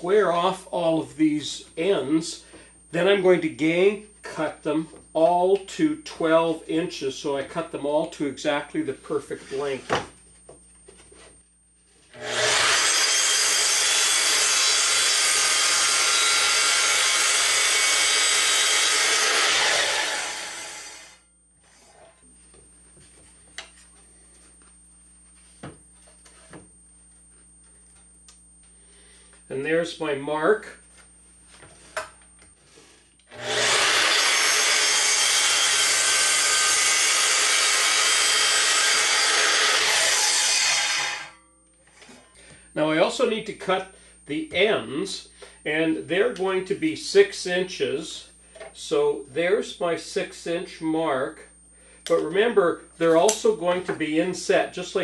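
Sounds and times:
miter saw cutting plywood: 0:12.2 - 0:21.2, 0:33.3 - 0:41.4.

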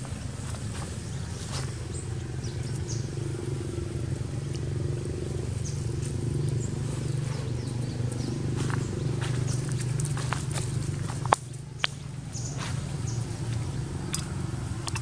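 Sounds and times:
dry leaves crackling: 0:00.0 - 0:03.2, 0:04.3 - 0:15.0
low engine hum: 0:00.0 - 0:15.0.

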